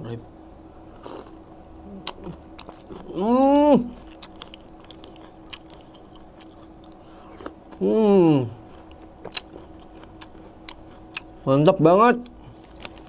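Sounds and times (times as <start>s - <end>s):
person humming mmm: 1.8s - 4.0s, 7.8s - 8.7s
cereal crunching while chewing: 2.0s - 3.2s, 3.9s - 7.8s, 8.6s - 11.3s, 12.5s - 13.0s.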